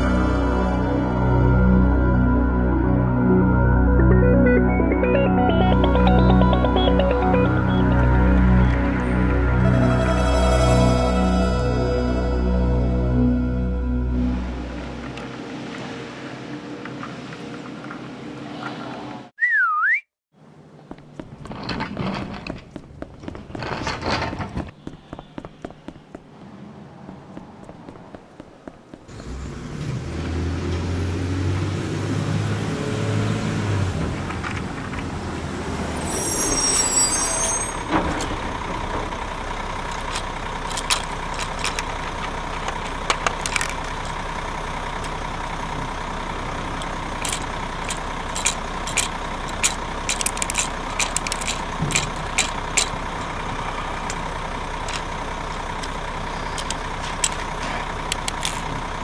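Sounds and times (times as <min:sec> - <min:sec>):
truck engine running low: 0:00.0 - 0:18.3, 0:37.8 - 0:59.0
sharp clicks: 0:58.1 - 0:58.6.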